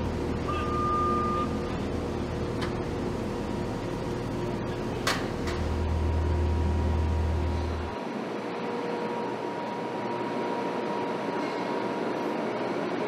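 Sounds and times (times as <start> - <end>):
industrial machinery hum: 0.0 - 13.0
single beep: 0.5 - 1.6.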